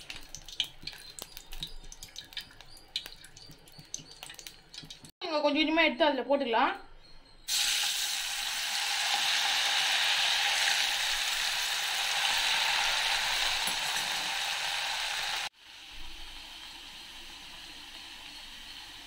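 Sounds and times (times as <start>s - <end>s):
potatoes sizzling in hot oil: 7.5s - 19.0s.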